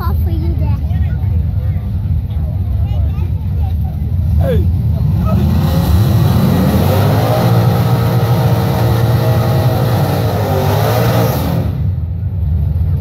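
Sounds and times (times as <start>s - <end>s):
drag racing cars launching: 4.2s - 12.9s.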